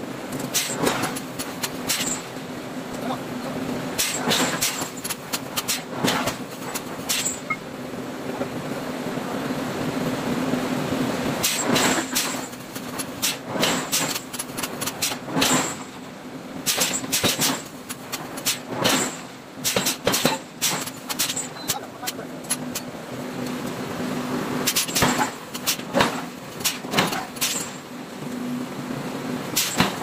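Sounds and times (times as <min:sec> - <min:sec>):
steady machine hum: 0:00.0 - 0:30.0
hammer striking hot iron: 0:04.0 - 0:07.6, 0:11.4 - 0:16.0, 0:16.7 - 0:22.9, 0:24.7 - 0:27.8, 0:29.6 - 0:30.0.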